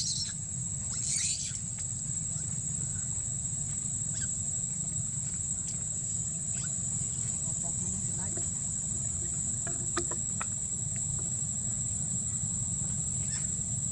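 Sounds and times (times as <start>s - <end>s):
high-pitched insect buzzing: 0.0s - 1.9s, 4.1s - 4.5s, 5.6s - 11.5s, 13.0s - 13.9s
low background rumble: 0.0s - 13.9s.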